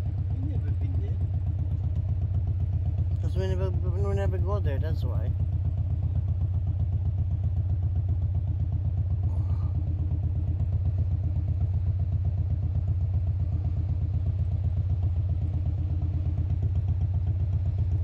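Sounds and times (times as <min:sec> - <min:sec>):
car engine rumbling inside cabin: 0:00.0 - 0:18.0.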